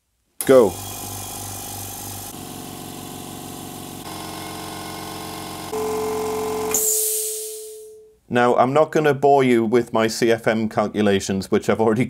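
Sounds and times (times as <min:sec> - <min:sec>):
air compressor humming: 0:00.4 - 0:07.9
air hissing: 0:06.7 - 0:07.9.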